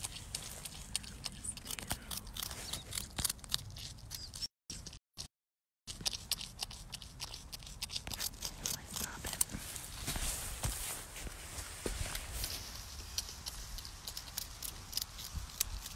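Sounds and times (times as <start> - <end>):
porcupine chewing crunchy food: 0.0 - 5.3, 5.9 - 15.9.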